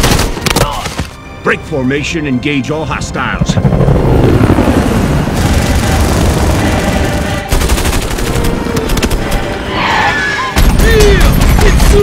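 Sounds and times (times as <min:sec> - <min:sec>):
machine-gun fire: 0:05.4 - 0:09.5
battle noise: 0:05.4 - 0:12.0.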